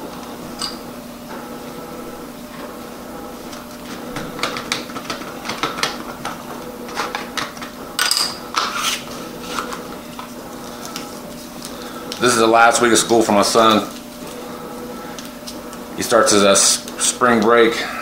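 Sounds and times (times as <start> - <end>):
steady background hum: 0.0 - 18.0.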